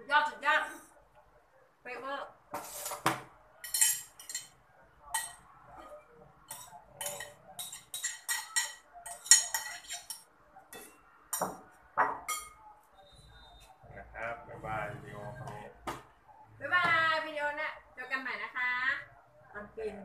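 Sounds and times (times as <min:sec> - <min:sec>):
metal spoon scraping ceramic plate: 0:06.5 - 0:10.9.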